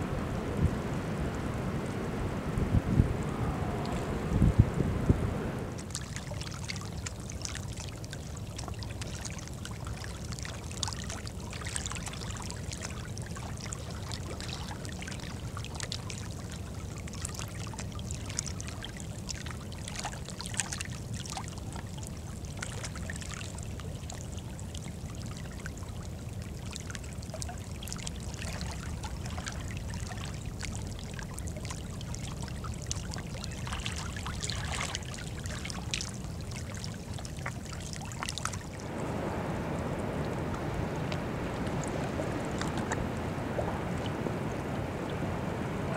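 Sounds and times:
low even rumble: 0:00.0 - 0:06.0, 0:37.2 - 0:45.9
small waves lapping: 0:00.0 - 0:45.9.

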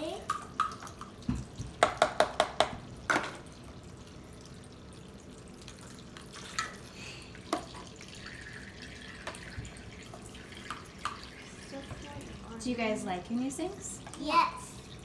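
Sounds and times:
plastic toy dishes knocking: 0:01.7 - 0:03.4
faint water trickle: 0:03.4 - 0:15.0.

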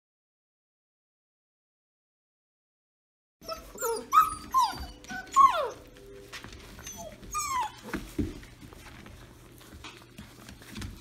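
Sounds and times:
puppies whining: 0:03.4 - 0:11.0.

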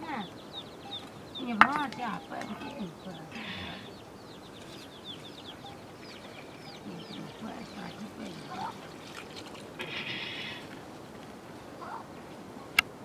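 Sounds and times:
chickens peeping: 0:00.0 - 0:12.8
chicken harsh call: 0:02.3 - 0:04.0, 0:09.8 - 0:10.8, 0:11.8 - 0:12.1.

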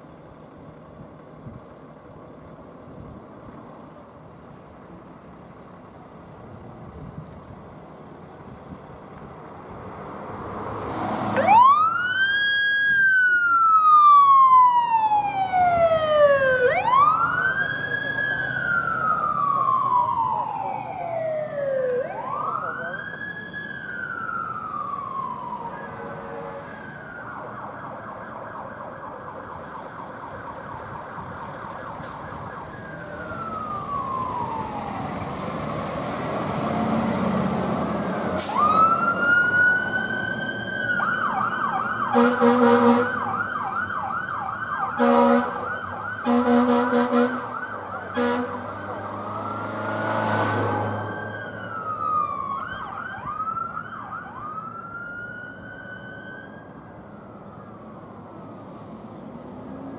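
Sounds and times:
fire engine siren wailing and yelping: 0:10.5 - 0:59.9
air horn blasts: 0:26.0 - 0:26.7, 0:42.1 - 0:43.2, 0:45.0 - 0:45.6, 0:46.2 - 0:48.6.

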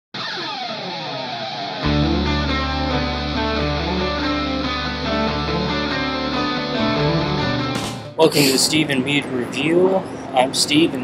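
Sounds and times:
guitar-led rock music: 0:00.2 - 0:08.6.

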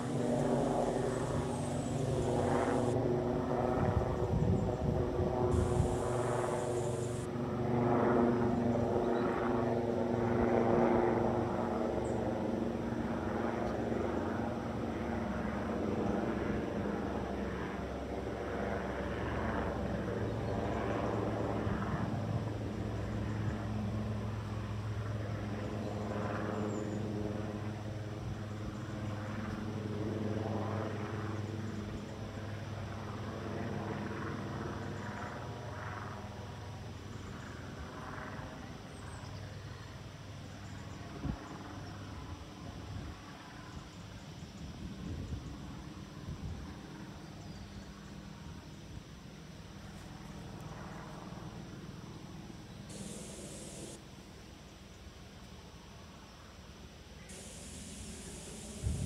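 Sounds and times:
engine droning: 0:00.0 - 0:03.0, 0:05.5 - 0:07.3, 0:52.9 - 0:54.0.

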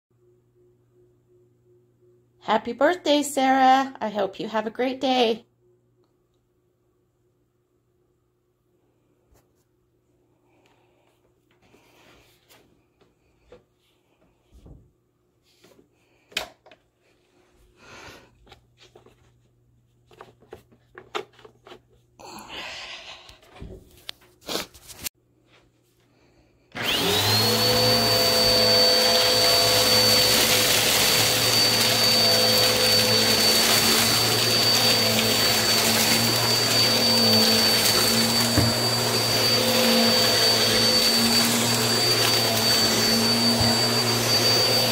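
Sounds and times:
vacuum cleaner motor whine: 0:26.7 - 0:44.9.

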